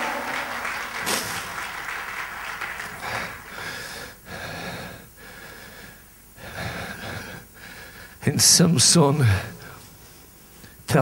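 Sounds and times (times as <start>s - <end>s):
man breathing heavily: 2.9s - 8.2s.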